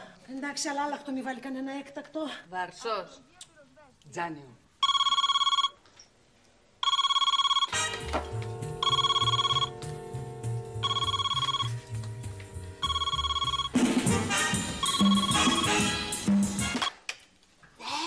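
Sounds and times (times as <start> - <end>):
telephone electronic ringer: 4.8 - 5.8, 6.8 - 7.9, 8.8 - 9.8, 10.8 - 11.7, 12.8 - 13.8, 14.8 - 15.9
background music: 7.7 - 17.0.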